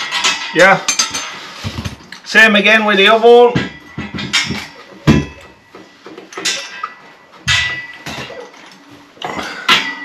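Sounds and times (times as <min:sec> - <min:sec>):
metal clinks and knocks: 0:00.0 - 0:02.3, 0:03.4 - 0:10.0.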